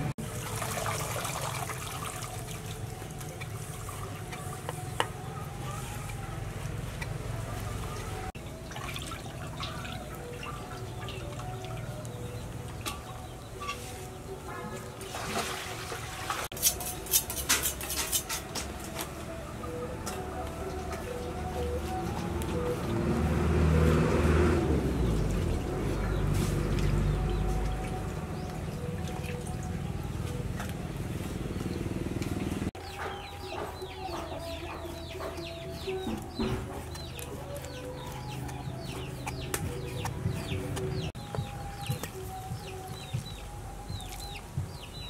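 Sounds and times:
water swishing in a metal bowl: 0.2s - 5.3s, 8.5s - 12.1s, 14.8s - 18.4s
chickens clucking and cheeping: 2.6s - 15.1s, 24.5s - 45.0s.

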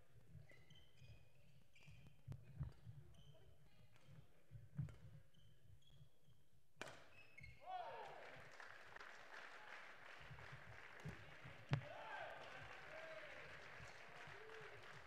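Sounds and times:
shoe squeaks: 0.4s - 4.2s, 5.2s - 6.4s, 7.0s - 7.6s.

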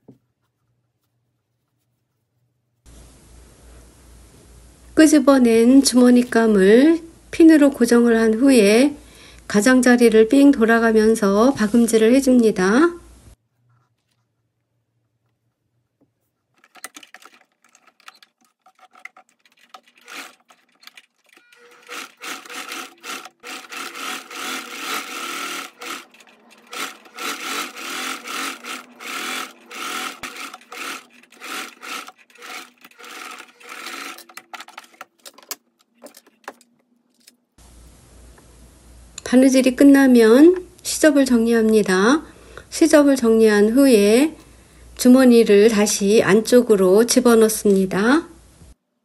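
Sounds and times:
sewing machine stitching: 16.6s - 36.3s.

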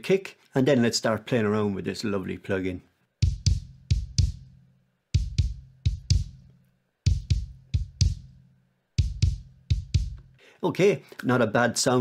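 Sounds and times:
kick drum pattern: 3.2s - 10.4s.

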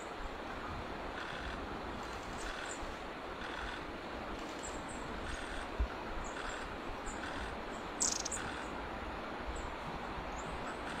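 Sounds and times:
background hiss: 0.0s - 11.0s
small birds chirping: 6.2s - 8.7s.

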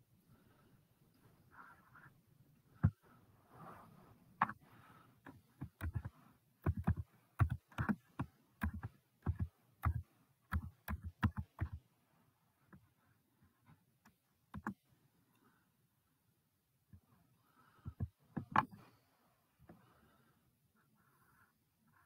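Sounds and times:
taps and clicks on device: 5.3s - 11.8s.

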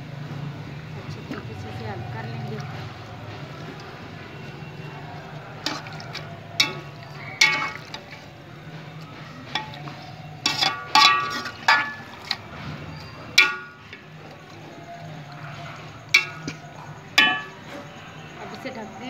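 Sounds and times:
spoon scraping metal pot: 5.2s - 8.4s, 9.4s - 18.0s.

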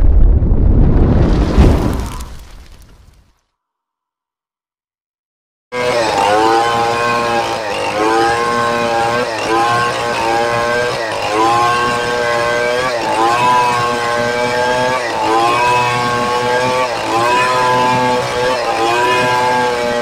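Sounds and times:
chainsaw cutting log at full throttle: 5.7s - 20.0s.

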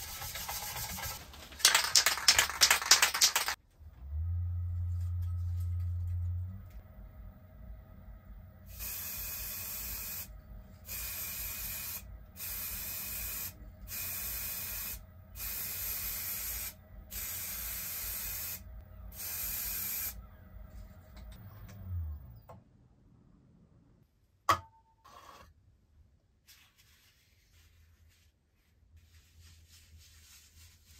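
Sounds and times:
aerosol spray can hissing: 10.9s - 18.6s.

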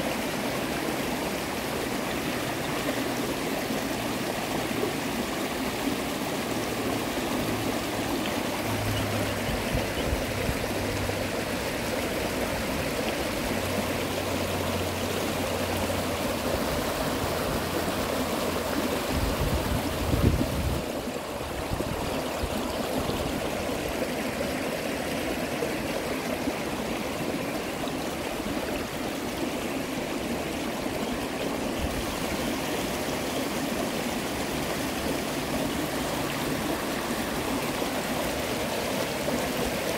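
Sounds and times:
creek rapids rushing over rocks: 0.0s - 39.9s.

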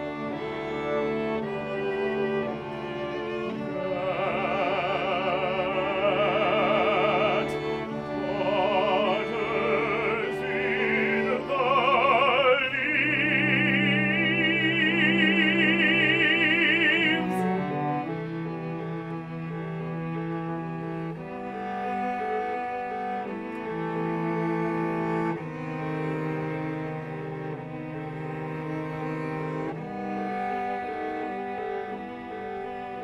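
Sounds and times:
bowed strings: 0.0s - 33.0s
operatic soprano singing: 3.7s - 18.0s.

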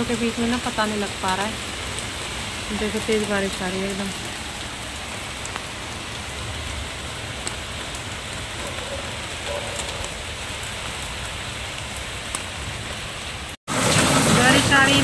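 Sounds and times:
heavy rain pouring: 0.0s - 15.0s
rain drop ticks: 0.1s - 13.0s.

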